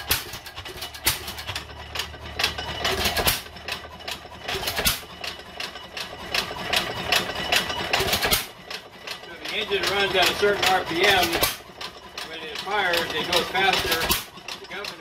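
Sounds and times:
engine firing stroke: 0.0s - 15.0s
engine mechanical clicking: 0.0s - 15.0s.

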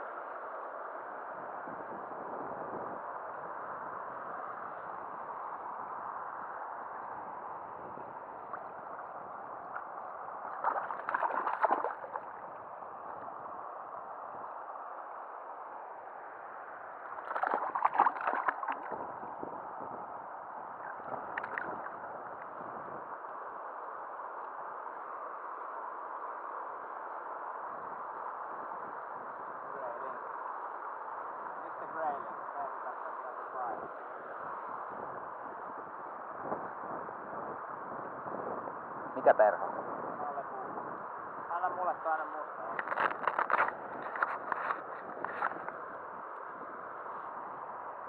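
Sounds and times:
river current rushing: 8.4s - 13.8s, 17.0s - 19.1s
fish splashing at surface: 10.6s - 12.4s, 17.2s - 19.0s.

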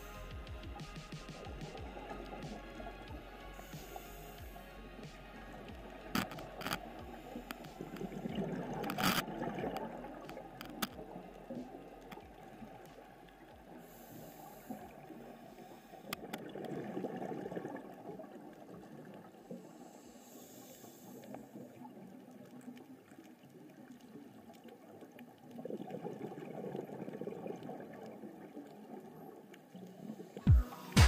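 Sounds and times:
regulator inhalation hiss: 0.0s - 8.3s, 13.8s - 16.1s, 19.6s - 21.6s
exhaled bubbles rushing: 0.0s - 19.8s, 21.1s - 31.0s.

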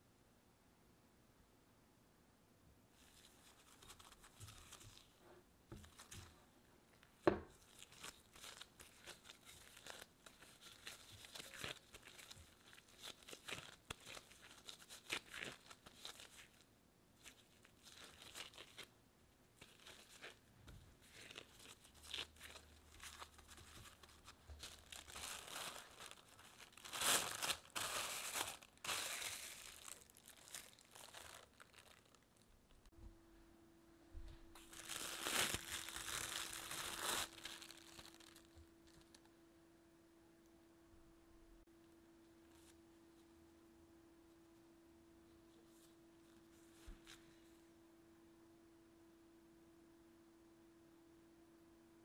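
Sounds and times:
plastic cling wrap crinkling: 3.0s - 6.4s, 7.0s - 18.9s, 19.6s - 32.9s, 34.6s - 39.3s
glove crackling: 19.6s - 32.9s, 34.6s - 39.1s.

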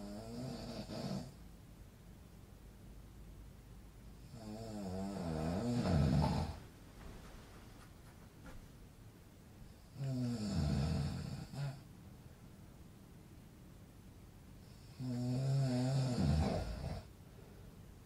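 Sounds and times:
man snoring: 0.0s - 1.4s, 4.2s - 6.6s, 9.8s - 11.8s, 14.7s - 17.1s.

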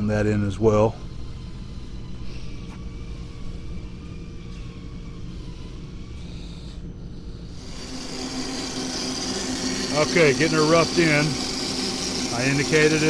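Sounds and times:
faint wavering whine: 0.0s - 13.0s
machinery humming: 0.0s - 13.0s
metal lathe running: 7.4s - 13.0s.

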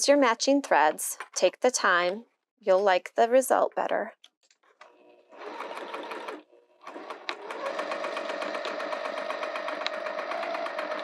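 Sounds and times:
sewing machine stitching: 4.8s - 11.0s.

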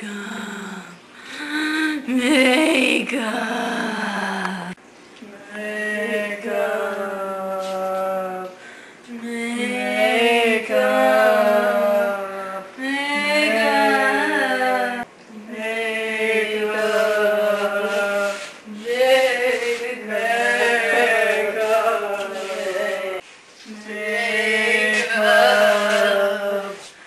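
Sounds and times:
wordless choir chanting: 13.3s - 26.8s.

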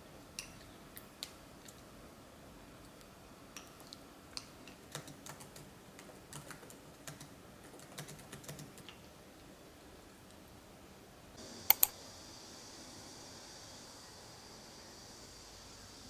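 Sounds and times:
laptop keyboard typing: 4.8s - 8.9s, 11.7s - 11.9s.

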